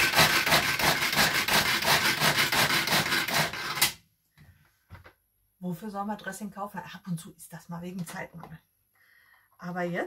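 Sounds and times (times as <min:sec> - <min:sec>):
cheese grinding in hand chopper: 0:00.0 - 0:04.0.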